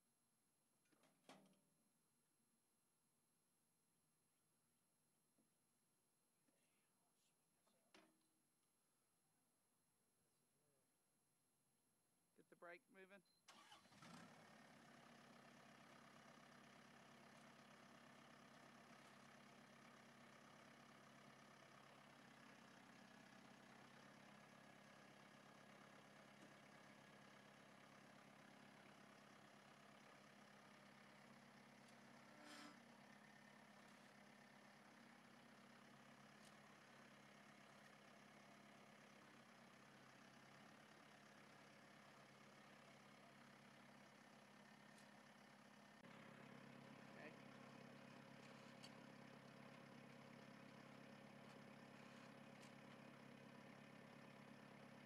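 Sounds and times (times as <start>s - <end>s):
faint tractor engine idling: 12.4s - 55.0s.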